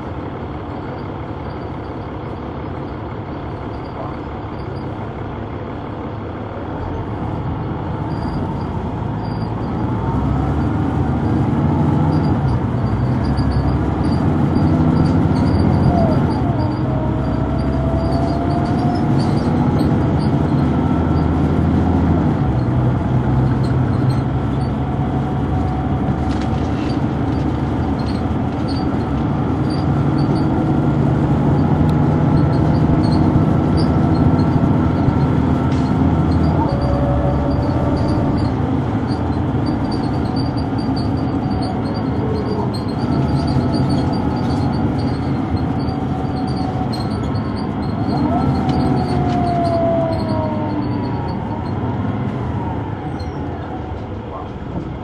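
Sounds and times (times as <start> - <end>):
bus diesel engine running: 0.0 - 55.0
rising whine: 24.5 - 54.1.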